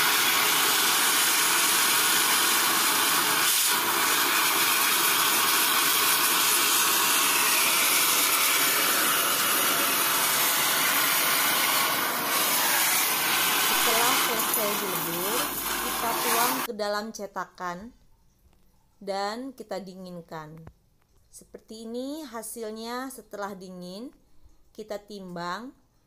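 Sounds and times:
gas torch flame hissing: 0.0 - 16.7.

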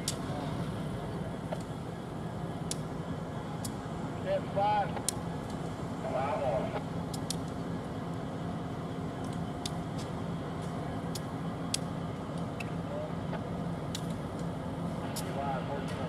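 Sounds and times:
diesel locomotive engine hum: 0.0 - 16.0.

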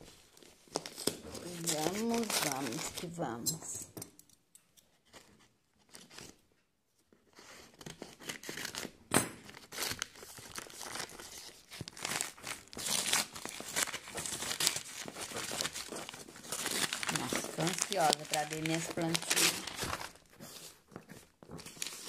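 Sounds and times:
paper tearing and crinkling: 0.0 - 3.3, 7.3 - 22.0
scissors cutting paper: 0.8 - 3.8, 12.0 - 20.5.

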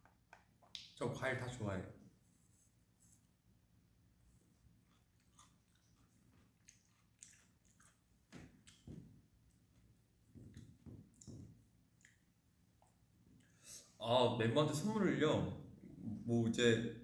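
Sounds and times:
person eating: 4.4 - 9.6.

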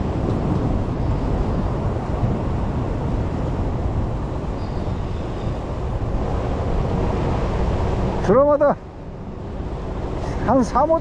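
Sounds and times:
ocean surf over rocks: 0.0 - 11.0
wind buffeting microphone: 0.0 - 11.0.

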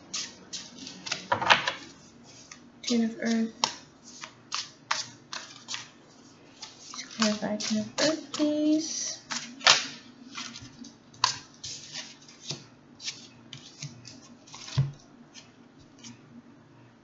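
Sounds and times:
cards being shuffled: 0.2 - 5.9, 6.6 - 8.5.

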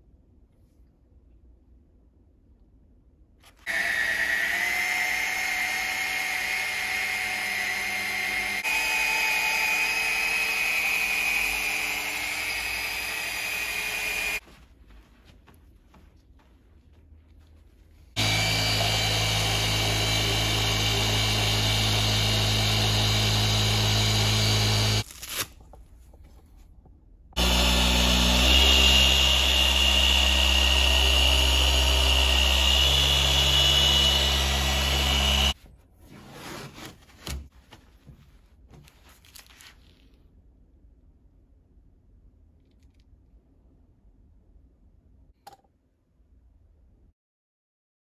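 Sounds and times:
electric polishing machine humming: 3.7 - 14.4, 18.2 - 25.0, 27.4 - 35.6.

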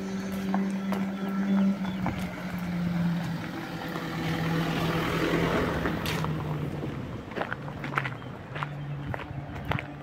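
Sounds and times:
motor drone sinking in pitch: 0.0 - 6.8.

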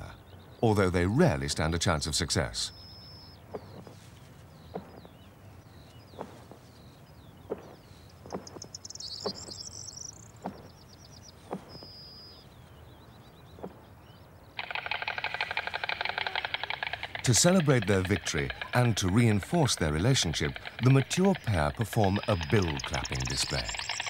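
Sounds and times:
small birds chirping: 0.0 - 24.0
stork bill-clattering rattle: 14.6 - 24.0.

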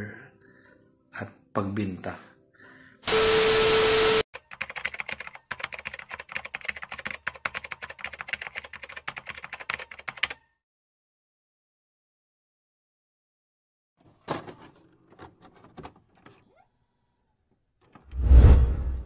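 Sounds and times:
keyboard typing clicks: 4.4 - 10.4.

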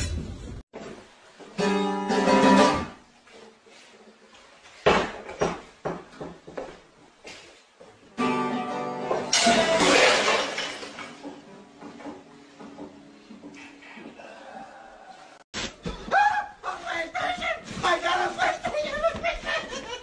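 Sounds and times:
acoustic guitar strummed: 1.6 - 3.0, 8.2 - 9.9.

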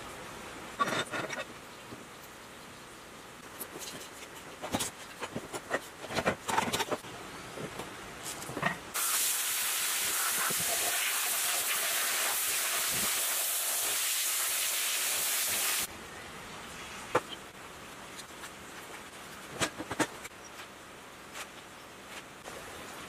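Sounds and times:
sandblaster hissing: 9.0 - 15.9.

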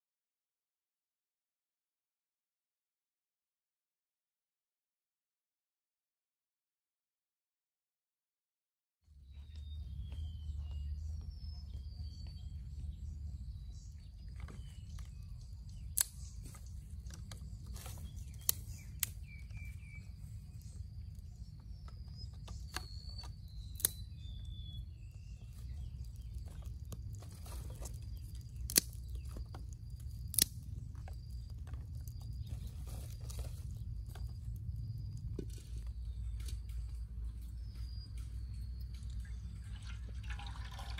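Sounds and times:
steady low rumble: 9.1 - 39.9
birds chirping: 9.1 - 40.9
dry sticks snapping: 14.9 - 24.8, 25.4 - 35.6.

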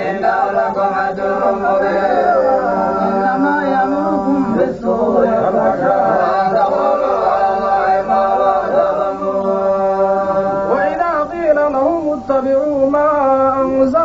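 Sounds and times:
man chanting recitation: 0.0 - 14.0.

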